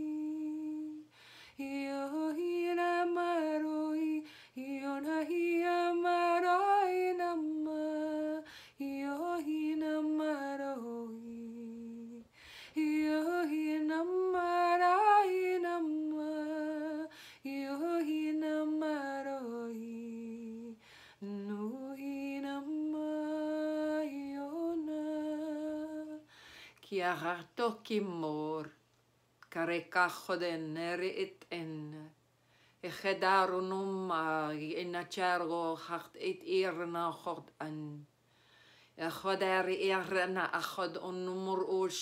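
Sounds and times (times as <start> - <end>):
woman singing wordless held notes: 0.0 - 28.8, 29.4 - 32.2, 32.8 - 38.1, 39.0 - 42.0
short breaths: 1.1 - 1.6, 12.3 - 12.8, 26.3 - 26.8, 38.2 - 39.0.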